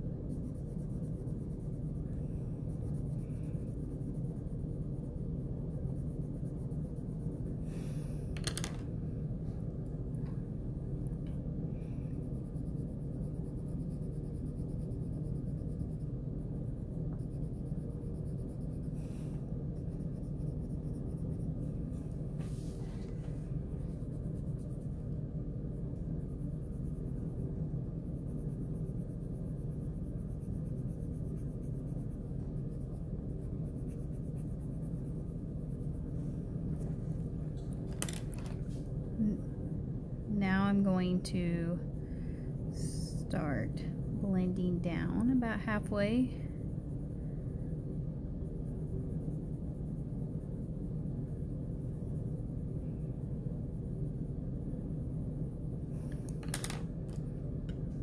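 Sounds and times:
colored pencil rubbing on paper: 0.0 - 8.1, 11.8 - 37.0, 48.4 - 52.5.

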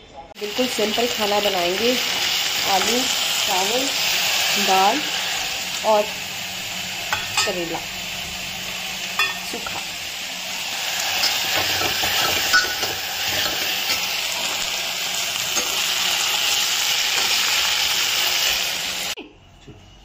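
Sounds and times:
food sizzling in a hot pan: 0.4 - 19.2.

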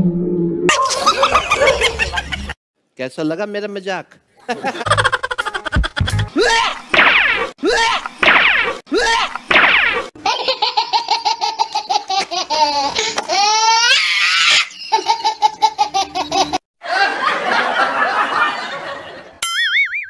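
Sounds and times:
laugh track laughter: 0.7 - 2.6, 4.4 - 6.9, 14.4 - 19.4
short warbling tone: 19.4 - 20.0.

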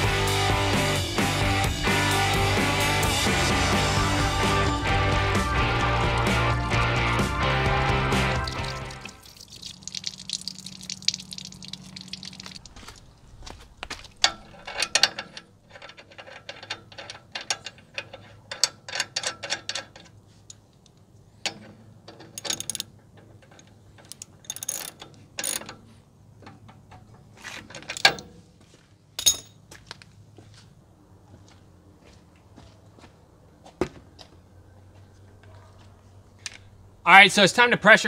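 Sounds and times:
sharp metal knocks: 29.2 - 29.6.

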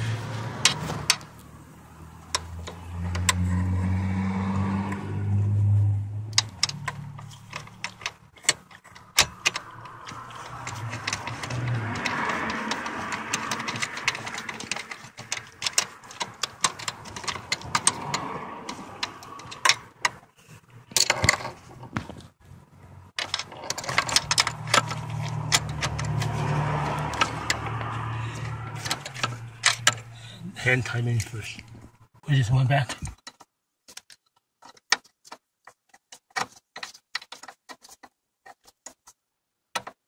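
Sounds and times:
socket ratchet clicking: 6.4 - 20.2.

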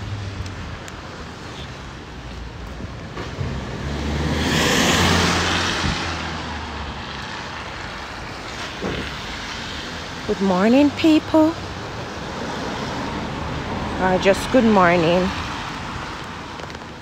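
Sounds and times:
vehicle passing by: 3.2 - 16.2.

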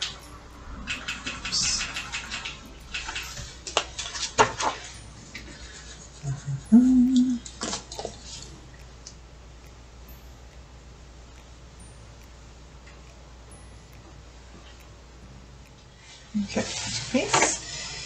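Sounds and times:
pen and pencils clicking: 0.0 - 8.9, 16.4 - 18.0
person humming: 6.2 - 7.6.

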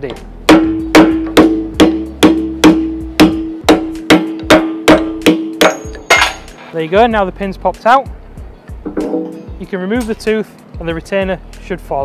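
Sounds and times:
hammer striking metal punch: 0.0 - 6.6, 8.8 - 10.2.

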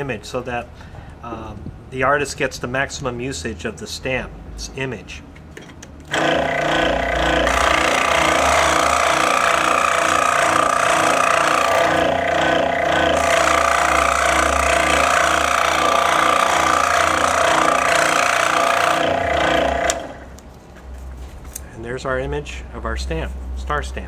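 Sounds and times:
scroll saw cutting rubber: 6.1 - 20.4.

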